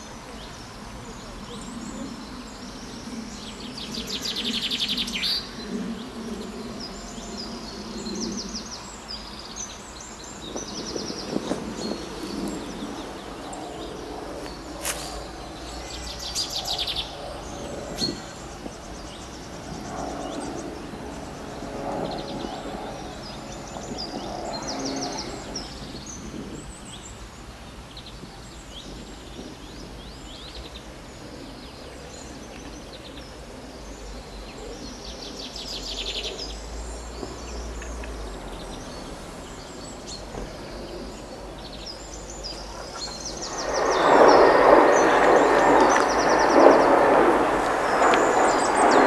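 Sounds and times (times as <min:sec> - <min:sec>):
outdoor background noise: 0:00.0 - 0:49.0
songbirds chirping and trilling: 0:00.0 - 0:49.0
loud rushing noise: 0:43.0 - 0:49.0.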